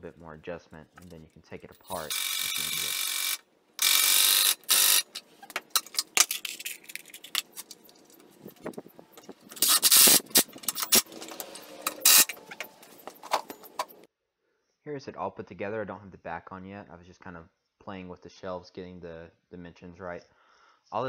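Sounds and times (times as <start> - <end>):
power drill driving screws into wood: 1.9 - 6.1, 9.6 - 12.7.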